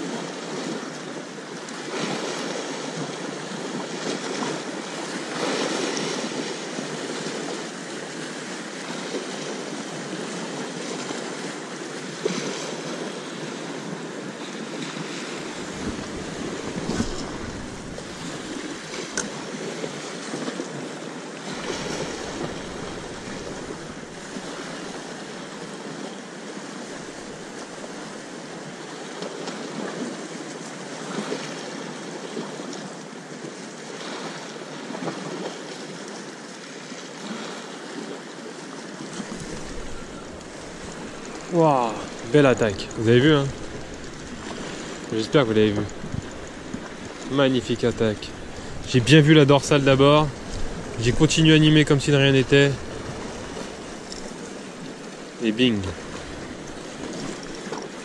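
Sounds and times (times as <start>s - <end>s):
sea waves breaking: 0.0s - 58.0s
wind buffeting microphone: 15.5s - 19.5s, 39.2s - 55.1s.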